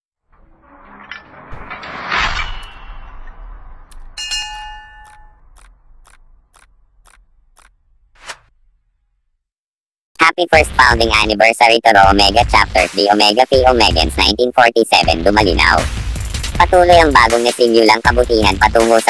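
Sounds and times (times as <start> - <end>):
whoosh: 0.3 - 8.6
bell-like ding: 4.2 - 5.5
sharp clicks: 5.0 - 8.4.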